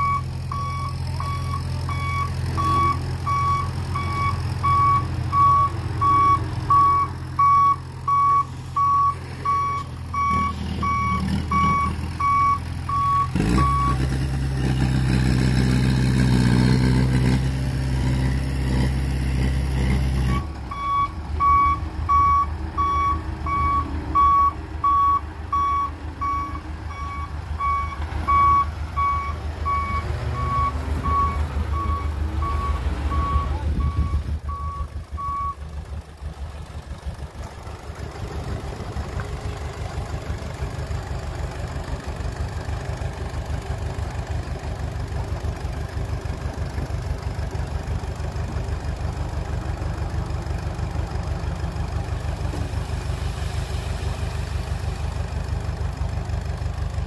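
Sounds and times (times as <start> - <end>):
reversing alarm beeping: 0.0 - 14.0, 20.3 - 35.6
diesel engines running: 0.0 - 57.0.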